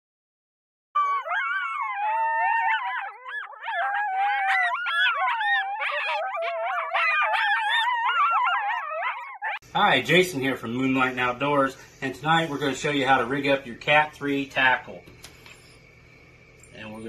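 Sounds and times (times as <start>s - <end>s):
dogs howling: 1.0s - 9.6s.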